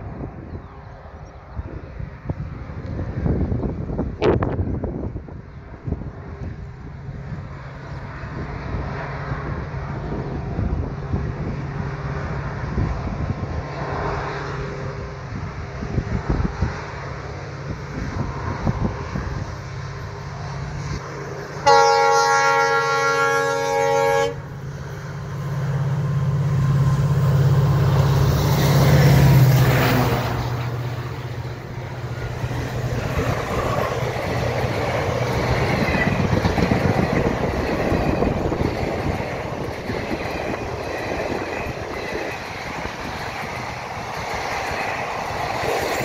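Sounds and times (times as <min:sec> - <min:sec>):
locomotive engine drone: 0:00.0 - 0:46.0
train wheels over rail joints: 0:02.1 - 0:46.0
train horn blast: 0:21.6 - 0:24.6.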